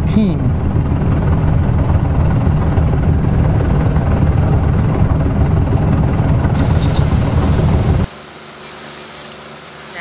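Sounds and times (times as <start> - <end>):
wind buffeting microphone: 0.4 - 8.1.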